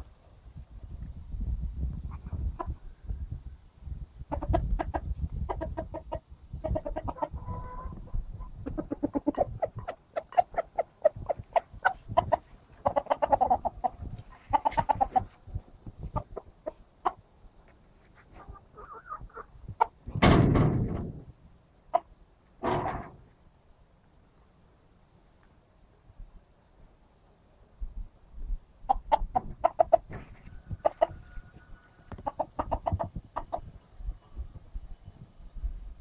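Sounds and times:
chickens clucking: 4.2 - 20.2, 21.8 - 23.2, 28.8 - 34.4.

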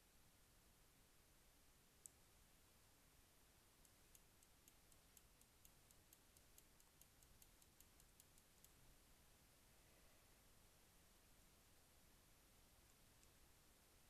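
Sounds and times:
rapid faint clicks: 3.8 - 9.0.

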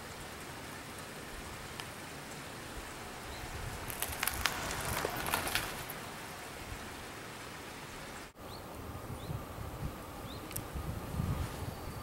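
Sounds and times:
steady outdoor hiss: 0.0 - 12.0
sharp clicks and crackles: 3.8 - 5.9.

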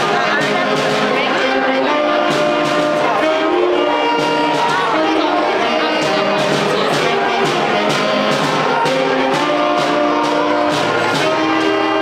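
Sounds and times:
school band playing held notes: 0.0 - 12.0
steady drum beat: 0.0 - 12.0.

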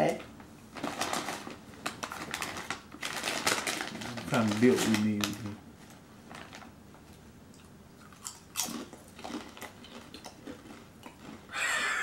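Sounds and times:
crunching potato chips: 0.8 - 5.5, 8.0 - 12.0.

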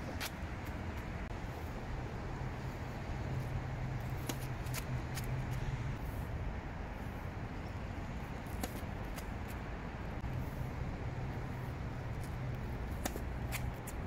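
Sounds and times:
road traffic noise: 0.0 - 14.0
vehicle low hum: 0.0 - 14.0
tennis ball bouncing on court: 12.9 - 14.0.

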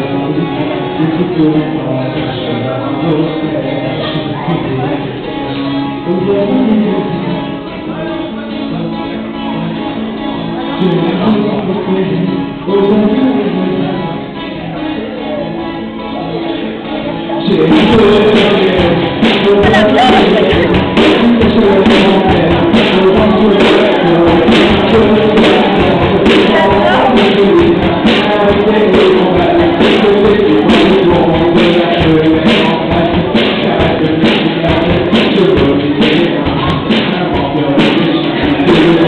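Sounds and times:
person singing: 0.0 - 39.0
strummed guitar: 0.0 - 39.0
drum kit with cymbals: 17.5 - 39.0.

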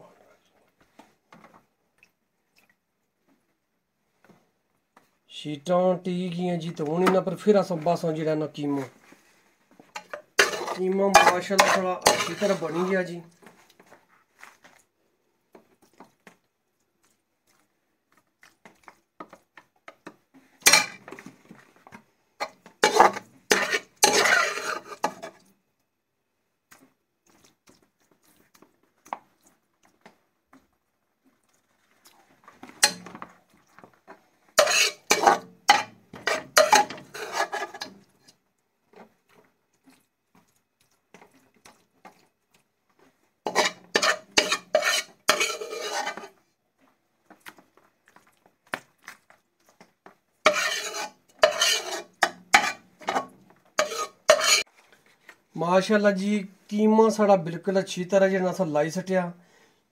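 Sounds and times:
metal spoon scraping in pot: 10.0 - 12.9, 20.6 - 21.1, 22.4 - 25.4, 32.8 - 33.2, 34.6 - 38.0, 43.5 - 46.4, 50.4 - 54.7.

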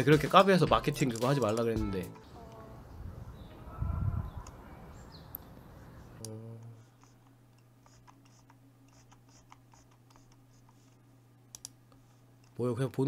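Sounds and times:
low electrical hum: 0.0 - 13.0
computer mouse clicks: 6.2 - 11.8.

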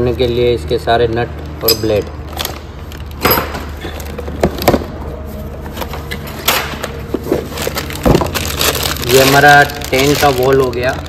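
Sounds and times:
steady low hum: 0.0 - 11.0
plastic bag crinkling: 6.9 - 11.0.

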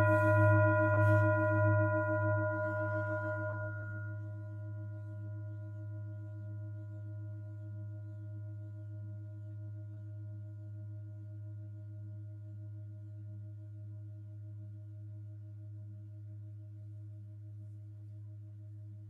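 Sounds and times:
singing bowls ringing: 0.0 - 7.4.

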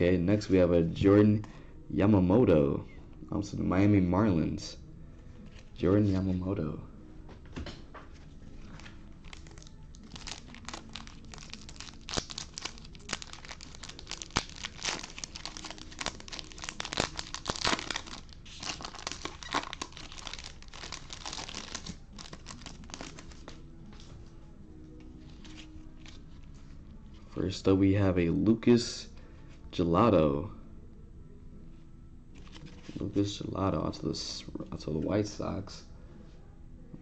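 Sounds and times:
foil wrapper crinkling and tearing: 8.8 - 23.6.

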